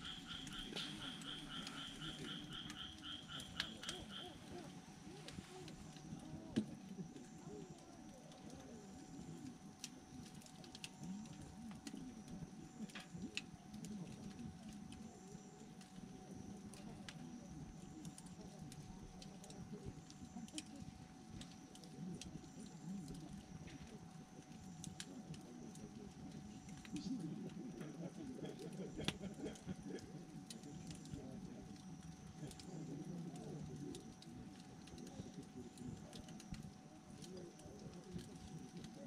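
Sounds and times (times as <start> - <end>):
campfire flames fluttering: 0.0 - 39.0
logs popping and crackling: 0.0 - 39.0.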